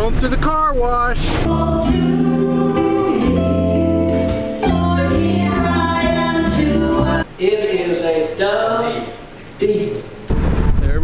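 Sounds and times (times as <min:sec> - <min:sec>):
bass line: 0:00.0 - 0:07.2
acoustic and electric guitars: 0:01.0 - 0:07.2
women singing: 0:01.3 - 0:07.3.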